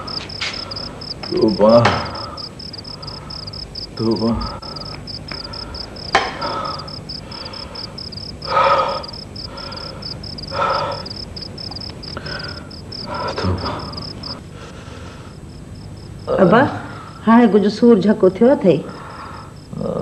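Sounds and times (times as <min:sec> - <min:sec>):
harsh cawing calls: 0:00.0 - 0:14.4
cricket chirping: 0:00.0 - 0:20.0.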